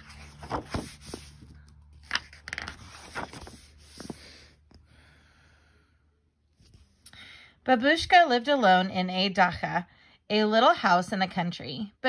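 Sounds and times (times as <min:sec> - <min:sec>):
book pages turning: 0:00.0 - 0:04.8, 0:06.6 - 0:07.0.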